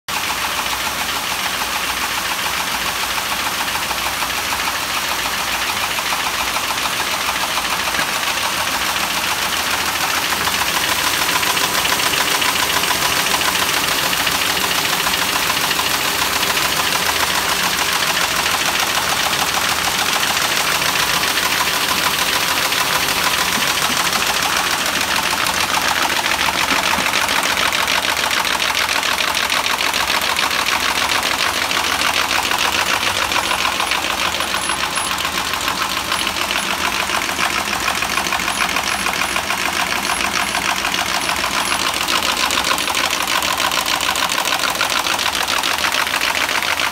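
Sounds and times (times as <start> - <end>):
folding machine clattering: 7.8 - 45.0.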